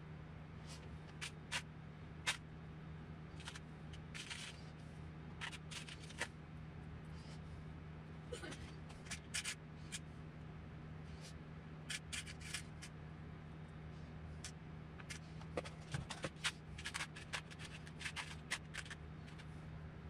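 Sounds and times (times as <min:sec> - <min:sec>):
screws rattling in plastic containers: 0:03.4 - 0:04.6, 0:05.4 - 0:06.3, 0:11.9 - 0:12.8, 0:15.1 - 0:19.4.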